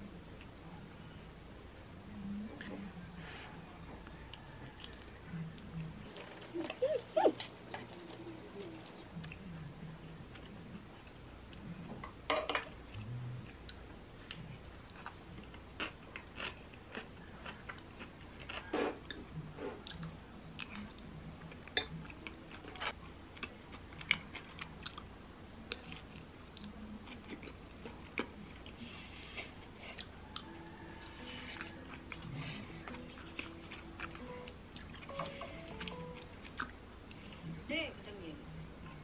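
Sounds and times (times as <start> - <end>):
chewing and biting: 13.6 - 19.2, 22.2 - 25.1, 25.7 - 30.5, 31.3 - 37.2.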